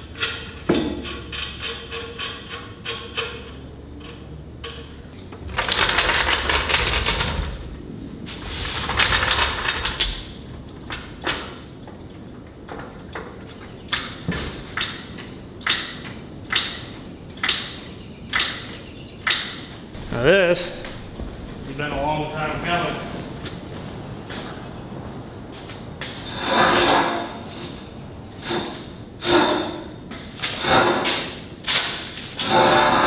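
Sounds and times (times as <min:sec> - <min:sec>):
floor jack rattling: 0:05.4 - 0:07.8, 0:08.4 - 0:11.6.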